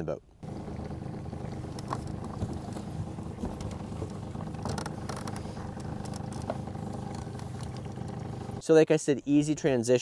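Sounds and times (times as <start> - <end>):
outboard motor running: 0.4 - 8.6
faint clicks: 0.6 - 8.5.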